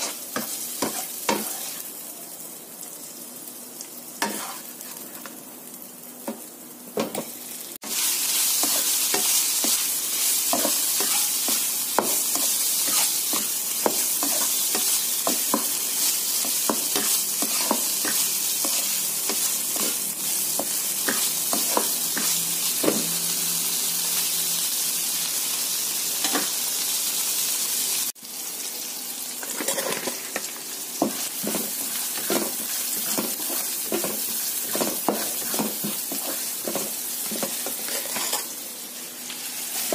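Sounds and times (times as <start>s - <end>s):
spatula scraping wok: 0.0s - 1.9s, 4.2s - 5.3s, 7.8s - 23.2s, 29.4s - 38.6s
food sizzling in hot oil: 0.0s - 39.9s.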